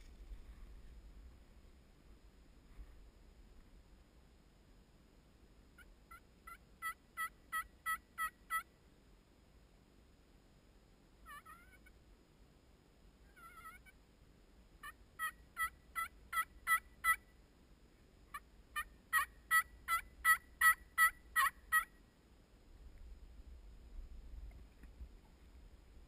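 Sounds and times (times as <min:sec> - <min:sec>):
turkey yelps: 0:05.8 - 0:08.6, 0:11.2 - 0:11.9, 0:13.3 - 0:14.0, 0:14.8 - 0:17.2, 0:18.3 - 0:21.9.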